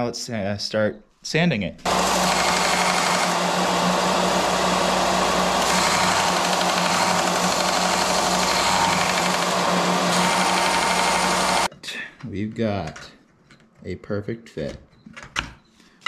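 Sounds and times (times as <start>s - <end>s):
bench sander grinding metal: 1.9s - 11.7s.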